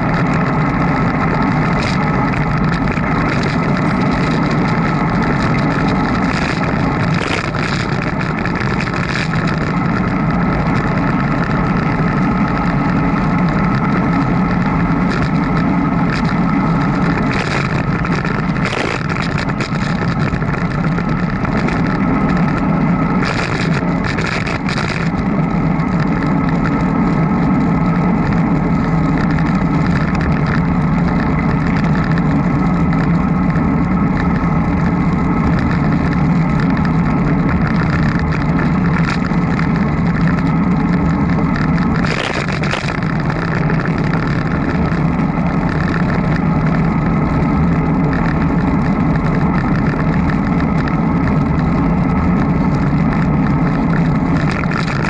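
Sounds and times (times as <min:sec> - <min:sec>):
bicycle riding drone: 0:00.0 - 0:55.0
light clicks and rattles: 0:00.0 - 0:55.0.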